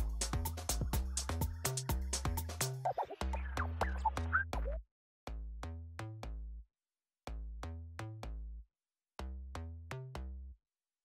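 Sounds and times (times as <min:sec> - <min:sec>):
electronic music with drum machine: 0:00.0 - 0:04.8.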